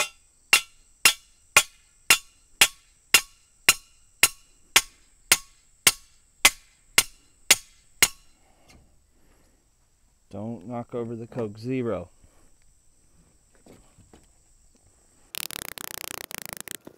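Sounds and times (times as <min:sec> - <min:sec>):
sledgehammer clanking on steel post: 0:00.0 - 0:08.3.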